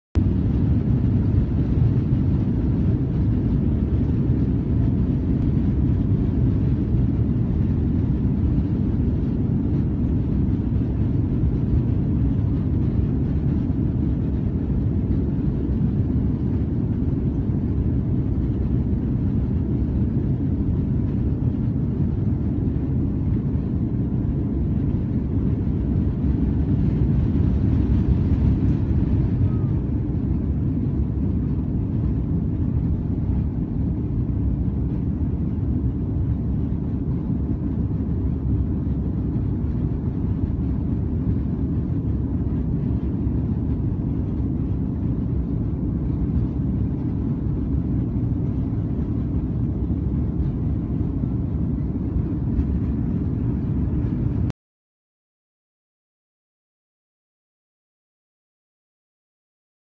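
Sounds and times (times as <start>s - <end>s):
airliner cabin takeoff rush: 0.2s - 54.5s.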